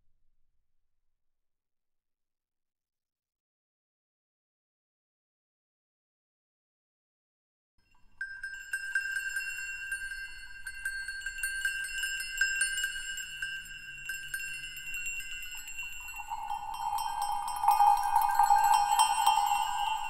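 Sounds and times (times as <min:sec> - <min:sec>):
lower ringing tone: 0:08.1 - 0:20.0
high ringing chime tones: 0:08.2 - 0:20.0
light tinkling strikes: 0:08.2 - 0:20.0.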